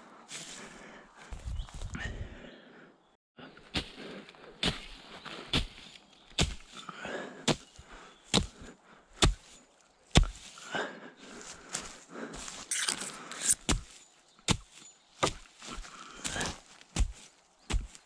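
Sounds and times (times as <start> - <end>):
rustling dry grass and soil: 0.0 - 2.2, 3.6 - 18.0
hatchet chopping into ground: 4.6 - 6.8, 7.4 - 10.5, 12.8 - 18.0.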